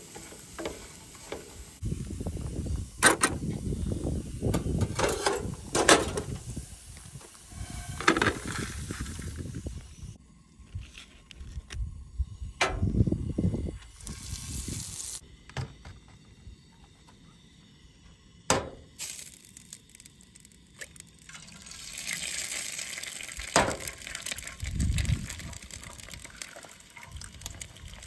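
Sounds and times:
egg sizzling in butter: 0:13.9 - 0:15.2, 0:18.9 - 0:28.0.

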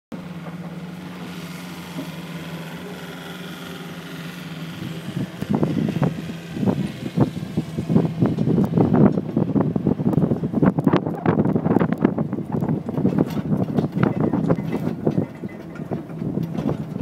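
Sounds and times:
truck engine running: 0:00.1 - 0:17.0
wind buffeting microphone: 0:04.0 - 0:17.0.

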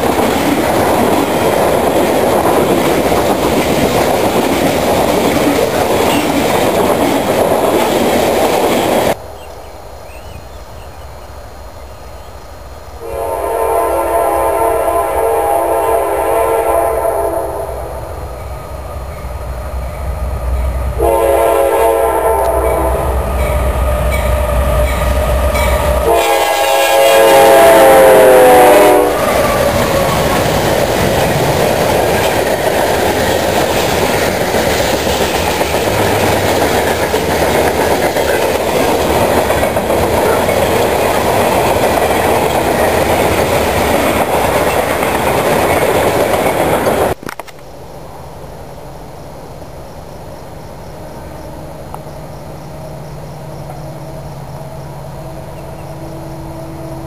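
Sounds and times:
freight cars clattering on rails: 0:00.0 - 0:09.2, 0:29.2 - 0:47.6
locomotive horn blasts: 0:13.0 - 0:18.0, 0:21.0 - 0:29.4, 0:53.7 - 0:57.0.

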